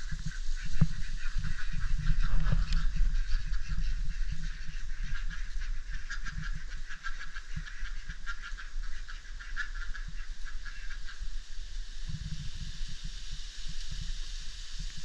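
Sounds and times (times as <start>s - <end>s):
chickens clucking softly: 0.0s - 11.4s.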